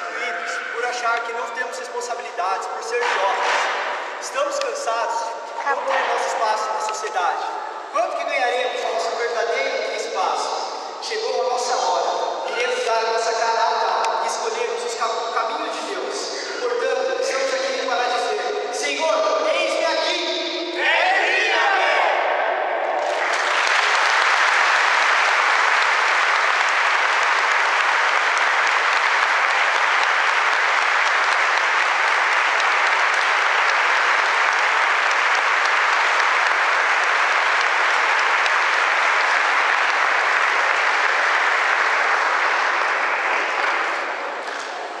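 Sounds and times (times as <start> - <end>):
audience applauding: 2.9 - 4.7, 23.0 - 45.0.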